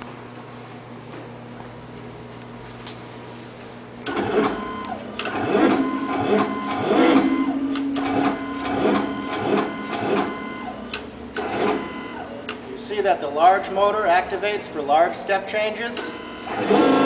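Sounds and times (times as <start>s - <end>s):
actuator motors whining: 4.0s - 12.7s, 15.8s - 17.0s.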